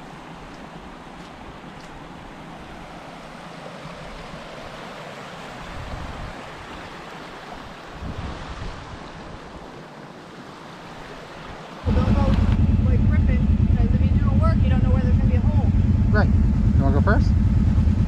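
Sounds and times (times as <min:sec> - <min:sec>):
floodwater rushing over road: 0:00.0 - 0:15.9
wind buffeting microphone: 0:05.5 - 0:06.9, 0:07.5 - 0:09.8, 0:11.3 - 0:18.0.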